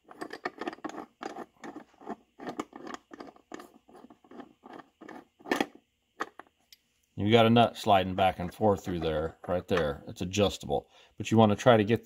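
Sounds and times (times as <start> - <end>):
bolt threads scraping: 0.0 - 6.5.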